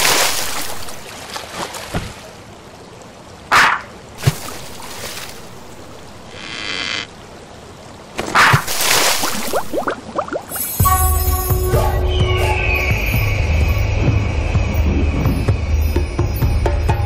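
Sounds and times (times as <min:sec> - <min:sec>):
cartoon water splashes: 0:03.5 - 0:04.7, 0:08.2 - 0:11.4.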